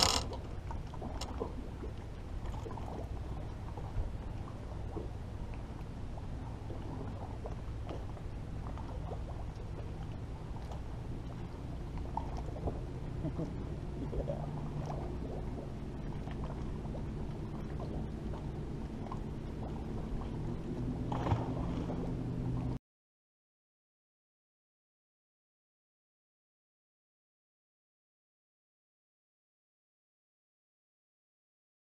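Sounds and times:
low steady hum: 0.0 - 22.8
water lapping against boat hull: 0.0 - 22.8.

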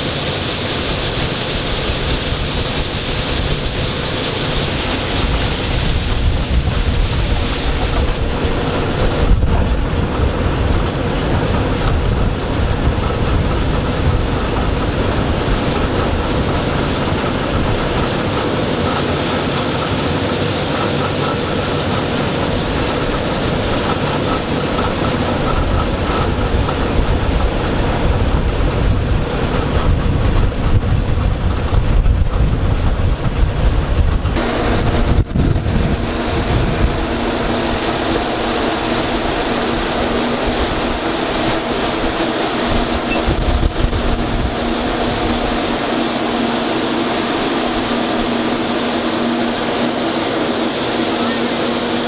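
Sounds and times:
combine harvester running: 0.0 - 52.0
tractor engine drone: 0.0 - 52.0
wind rumbling on microphone: 0.0 - 52.0.

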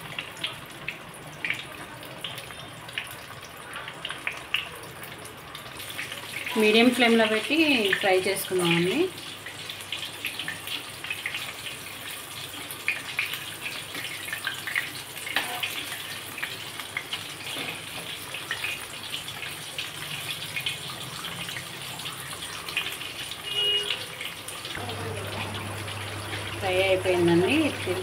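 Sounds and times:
chicken deep-frying in oil: 0.0 - 28.0.

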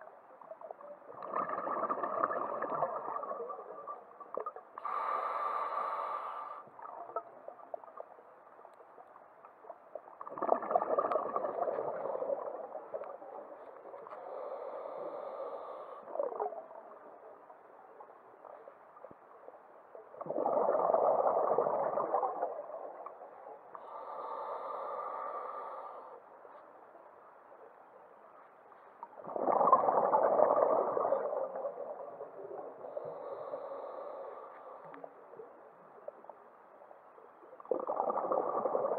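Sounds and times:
underwater bubbles gurgling: 0.0 - 26.0, 29.0 - 36.5, 37.2 - 38.9
bubbling exhalation underwater: 1.2 - 3.7, 10.2 - 13.0, 20.2 - 22.7, 29.2 - 32.0, 37.7 - 38.9.

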